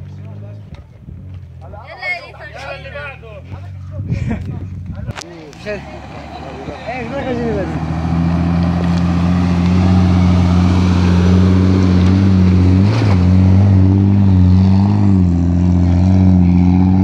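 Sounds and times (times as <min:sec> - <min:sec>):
engine pulling under load: 0:05.4 - 0:17.0.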